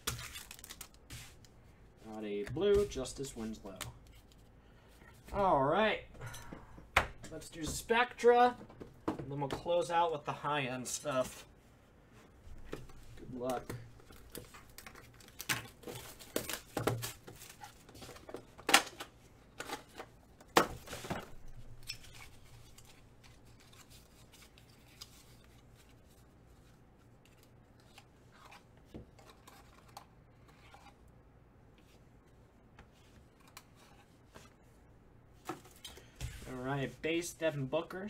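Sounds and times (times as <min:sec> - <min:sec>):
card pack ripping and rustling: 0:00.0 - 0:01.0.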